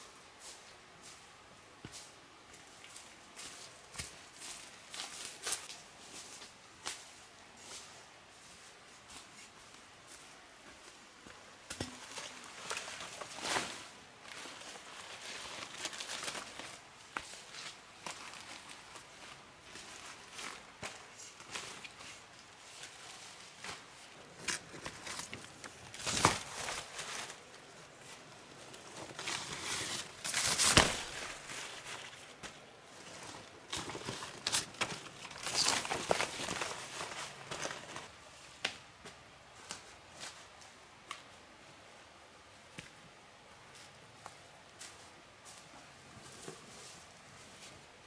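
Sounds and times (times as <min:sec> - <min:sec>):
footsteps: 0:00.4 - 0:15.5, 0:16.6 - 0:38.2
rustling and crackling: 0:01.8 - 0:41.2, 0:43.7 - 0:48.0.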